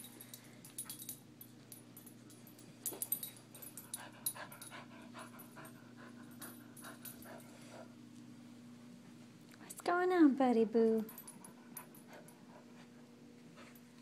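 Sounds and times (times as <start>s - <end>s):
dog panting: 3.8s - 7.9s.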